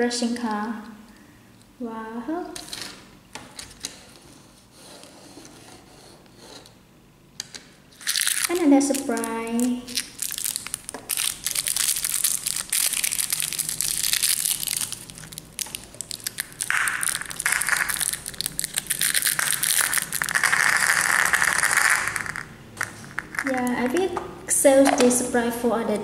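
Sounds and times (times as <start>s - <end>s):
plastic wrapper crinkling: 8.0s - 24.0s.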